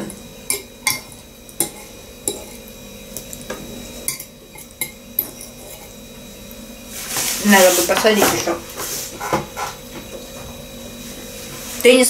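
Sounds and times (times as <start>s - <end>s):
fork clinking on ceramic bowl: 0.5s - 2.6s, 4.1s - 6.0s.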